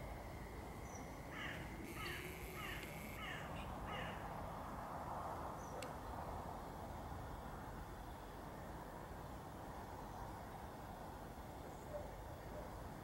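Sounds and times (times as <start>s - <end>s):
bird calling: 0.8s - 4.2s.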